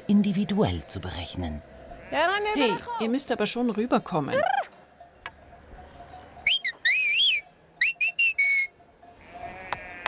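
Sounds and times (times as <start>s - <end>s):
person whistling: 6.4s - 8.7s.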